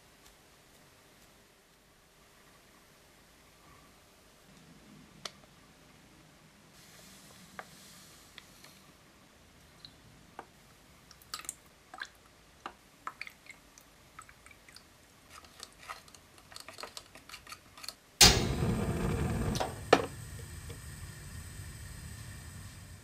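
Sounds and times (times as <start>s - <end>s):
sharp knock: 18.2s - 20.1s
loud rushing hiss: 18.2s - 23.0s.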